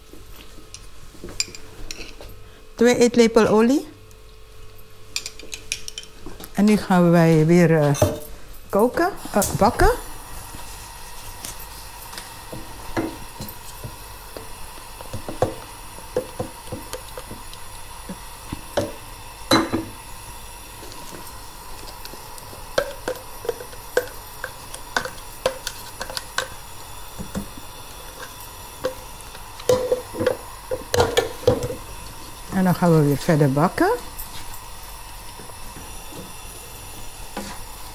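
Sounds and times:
paste sizzling in oil: 9.2 - 37.9
utensils knocking on pan: 29.7 - 31.8.

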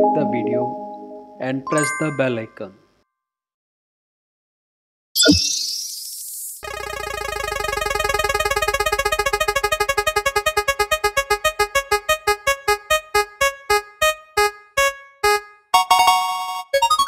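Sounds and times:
synthesized note repeating: 6.6 - 11.4.

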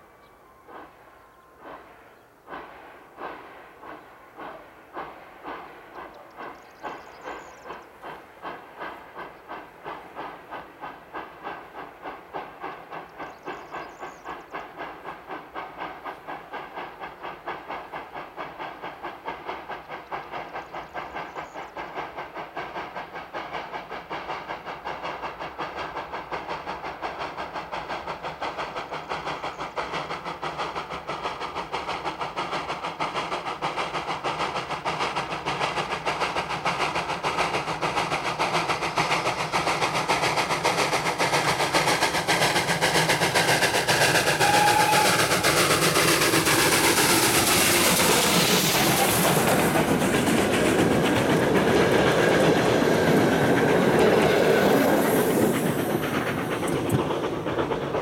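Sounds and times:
steam locomotive chuffing: 0.0 - 58.0.

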